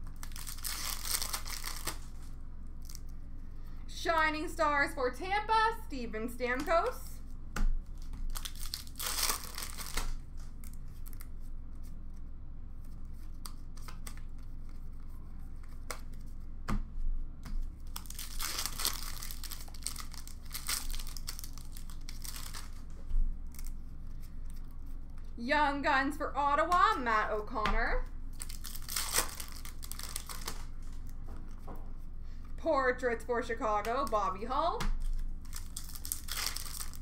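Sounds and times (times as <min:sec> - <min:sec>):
foil wrappers tearing and crinkling: 0:00.0 - 0:02.1, 0:07.9 - 0:11.3, 0:17.8 - 0:22.9, 0:28.3 - 0:31.1, 0:35.0 - 0:37.0.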